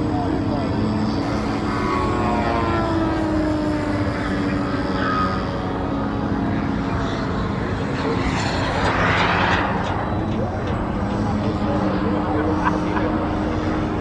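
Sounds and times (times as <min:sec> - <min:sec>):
model plane motor whining: 0:00.0 - 0:07.8.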